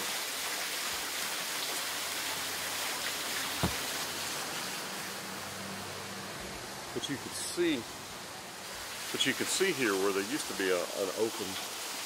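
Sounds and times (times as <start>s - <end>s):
running water hiss: 0.0s - 12.0s
soft thump: 3.6s - 4.0s.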